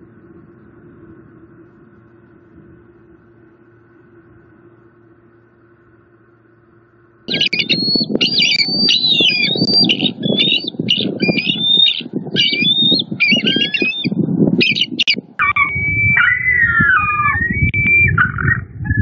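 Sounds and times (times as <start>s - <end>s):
low rough rumble: 0.0s - 19.0s
eagles calling with piping chirps: 7.3s - 19.0s.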